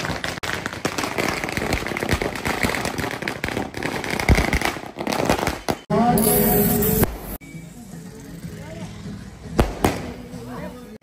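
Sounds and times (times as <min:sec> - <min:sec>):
firecrackers cracking and popping: 0:00.0 - 0:07.3, 0:09.6 - 0:10.3.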